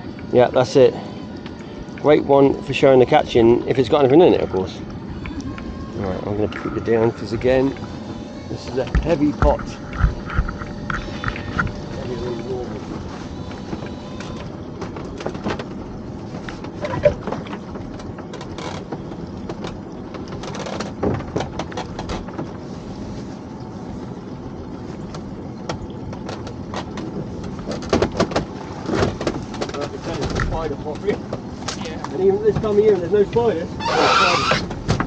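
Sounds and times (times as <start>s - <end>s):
boat engine running: 0.0s - 35.0s
rope and hauling gear knocking: 8.8s - 11.8s.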